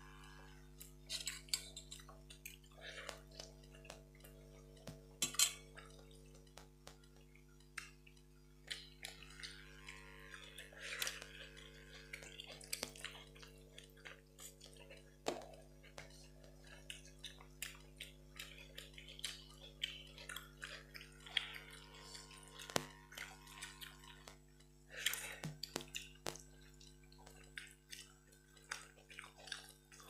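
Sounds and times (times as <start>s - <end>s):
steady low hum: 0.0s - 30.0s
chewing and mouth sounds: 0.2s - 30.0s
small clicks on metal plates: 22.2s - 22.9s.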